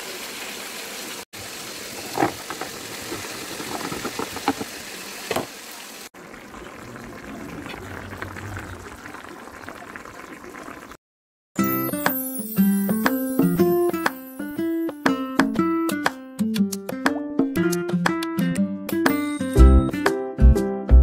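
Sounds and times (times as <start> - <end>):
meat and potatoes sizzling: 0.0 - 10.8
sauce simmering: 6.0 - 11.0.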